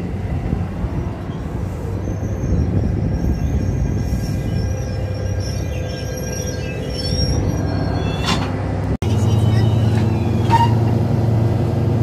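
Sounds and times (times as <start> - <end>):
train coaches rumbling past: 0.0 - 12.0
high wheel squeal: 1.3 - 8.5, 9.1 - 11.0.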